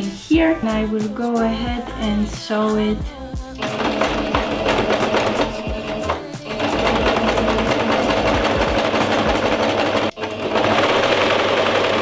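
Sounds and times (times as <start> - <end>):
sewing machine stitching: 3.6 - 12.0.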